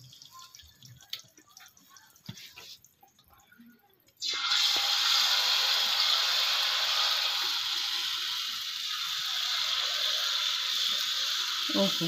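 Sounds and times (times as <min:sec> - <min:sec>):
batter sizzling in hot oil: 0:04.2 - 0:12.0.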